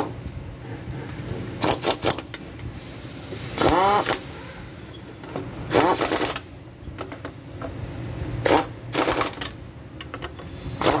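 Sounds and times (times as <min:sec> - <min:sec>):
impact wrench rattling: 0:05.7 - 0:06.4, 0:08.4 - 0:11.0.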